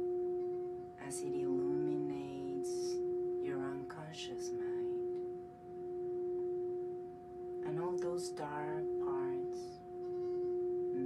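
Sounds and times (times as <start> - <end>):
singing bowl ringing: 0.0 - 11.0
wordless voice: 1.0 - 5.1, 7.6 - 9.8.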